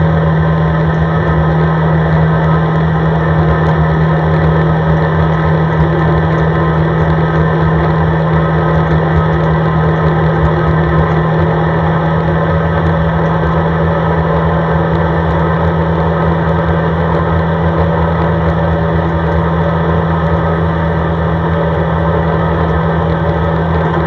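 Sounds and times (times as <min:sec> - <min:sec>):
atv engine droning: 0:00.0 - 0:24.0.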